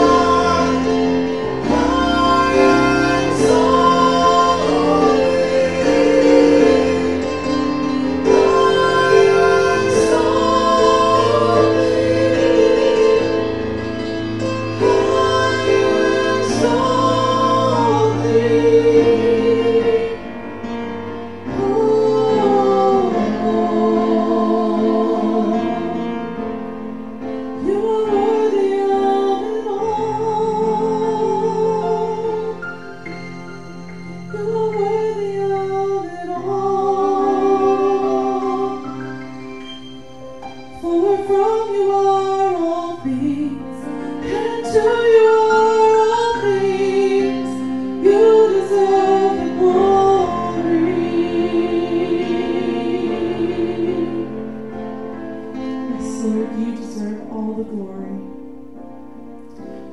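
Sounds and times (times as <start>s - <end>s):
instrumental accompaniment: 0.0s - 59.9s
woman singing: 21.5s - 25.8s, 27.6s - 32.6s, 34.3s - 39.0s, 40.8s - 51.8s, 55.9s - 58.4s.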